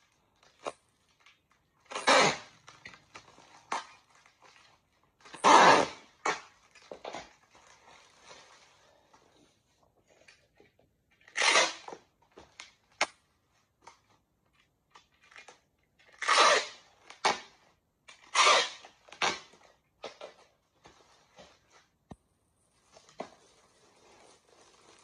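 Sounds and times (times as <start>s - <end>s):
packing tape screeching: 1.8s - 4.1s, 5.2s - 6.8s, 11.2s - 12.0s, 16.0s - 17.5s, 18.1s - 19.5s
bubble wrap crinkling: 22.7s - 25.0s.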